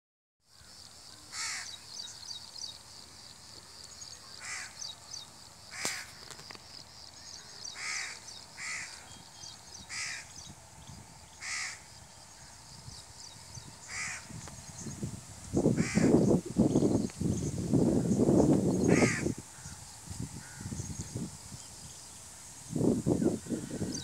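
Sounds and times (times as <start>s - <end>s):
crows cawing: 0.5s - 1.8s, 4.4s - 4.9s, 5.7s - 6.4s, 7.3s - 9.1s, 9.8s - 10.3s, 11.4s - 12.6s, 13.8s - 14.4s, 15.8s - 16.2s, 18.9s - 19.8s, 20.4s - 20.8s.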